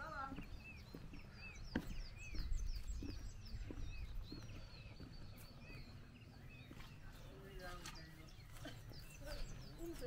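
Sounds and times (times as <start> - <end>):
wind rumble on microphone: 0.0 - 6.8
small birds chirping: 0.0 - 10.0.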